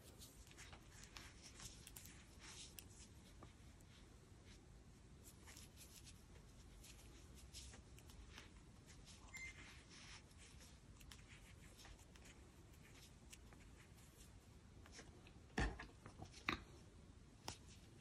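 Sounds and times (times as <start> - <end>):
crochet hook rubbing yarn: 5.2 - 14.4.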